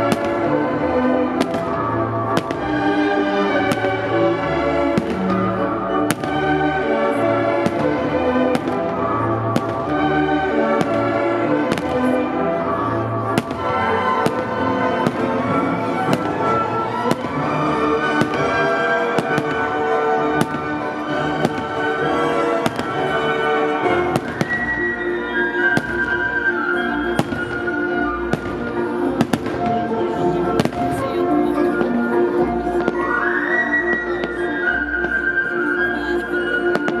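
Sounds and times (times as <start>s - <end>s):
fireworks bursting: 0.0s - 31.2s, 36.7s - 37.0s
loud music: 0.0s - 31.2s.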